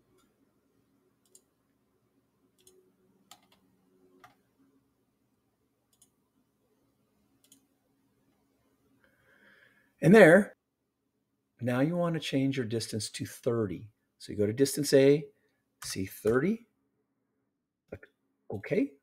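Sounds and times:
faint mouse clicks: 1.2 - 1.5, 2.6 - 3.6, 5.9 - 6.2, 7.4 - 7.7.

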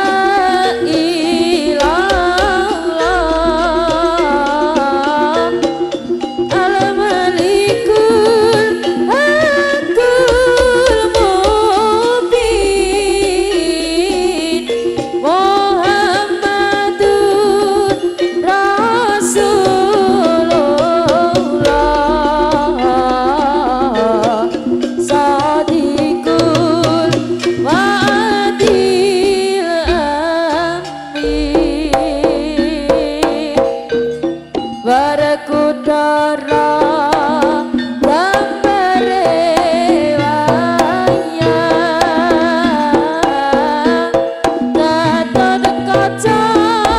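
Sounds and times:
sliding lead melody: 0.0 - 44.1
drum strokes: 0.0 - 46.9
repeating ensemble pattern: 19.4 - 27.8, 30.8 - 34.8
deep low tone: 31.2 - 33.6.

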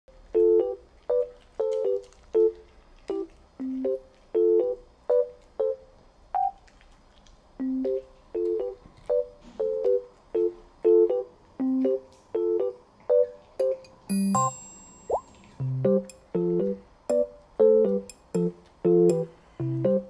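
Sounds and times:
bouncy staccato keyboard music: 9.7 - 20.0.

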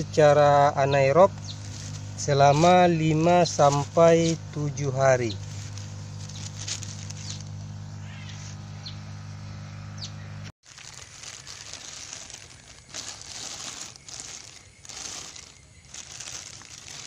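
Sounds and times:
air pump humming: 0.0 - 17.0
cloth and plastic rustling: 1.5 - 4.5, 5.2 - 7.7, 10.6 - 17.0.

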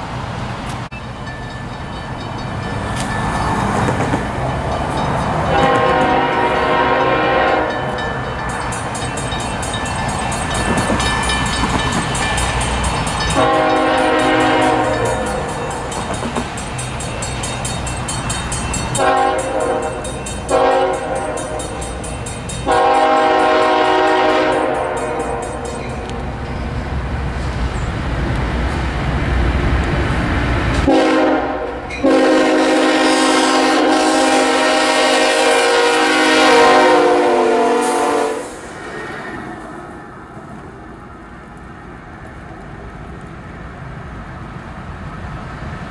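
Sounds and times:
diesel engines and wheels rumbling: 0.0 - 45.9
train air horn blasts: 5.4 - 8.0, 13.3 - 15.8, 19.0 - 21.8, 22.6 - 25.6, 30.8 - 38.7.

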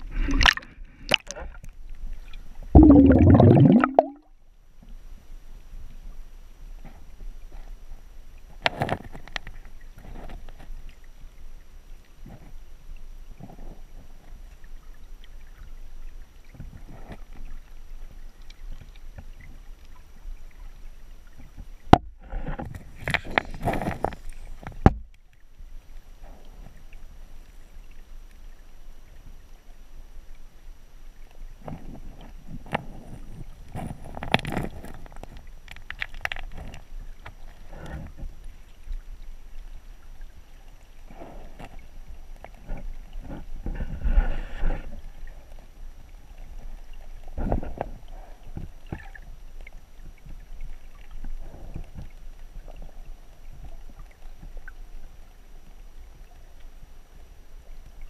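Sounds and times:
bubbling and splashing: 0.0 - 1.7, 2.7 - 4.3
muffled underwater water rush: 0.0 - 4.3, 5.0 - 58.0.

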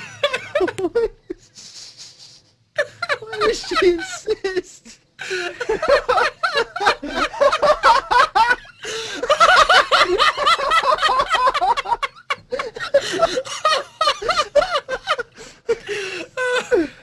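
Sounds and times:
people laughing: 0.0 - 17.0.

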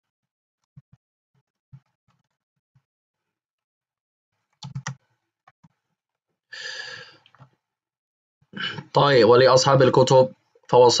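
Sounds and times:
keyboard typing clicks: 4.6 - 5.0
breathy sigh: 6.5 - 7.2.

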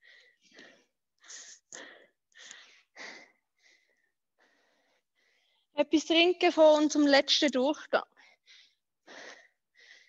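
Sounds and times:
person breathing hard: 0.0 - 5.8, 8.1 - 10.0.

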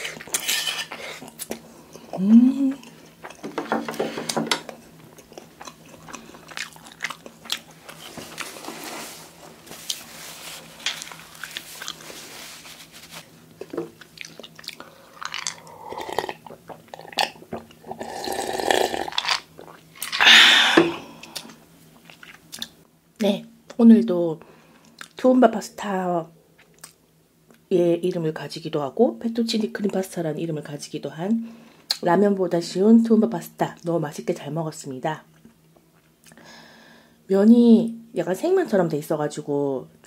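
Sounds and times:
close chewing and mouth sounds: 0.0 - 3.6, 4.7 - 8.7, 9.7 - 12.6, 13.5 - 18.4, 19.1 - 20.2, 21.2 - 22.8, 24.8 - 25.2, 26.6 - 27.7, 35.3 - 36.4
loud breathy burst: 20.2 - 21.2.

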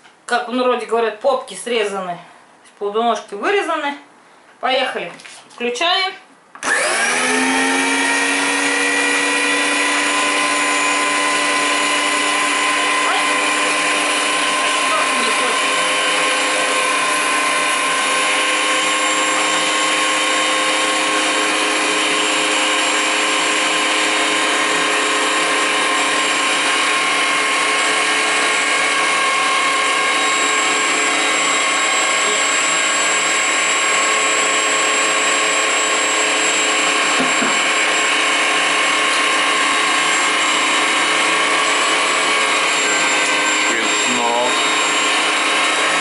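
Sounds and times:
electric meat grinder whining: 6.6 - 46.0.

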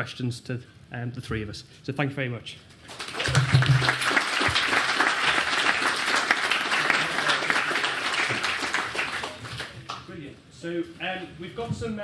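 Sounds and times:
audience applauding: 2.9 - 10.0.

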